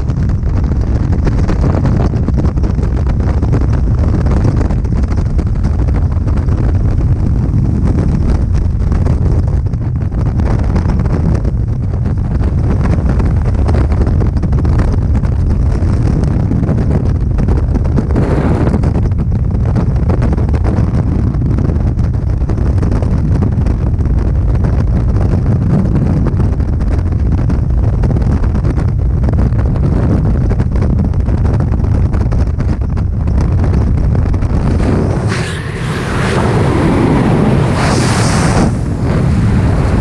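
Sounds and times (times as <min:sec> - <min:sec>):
wind buffeting microphone: 0:00.0 - 0:40.0.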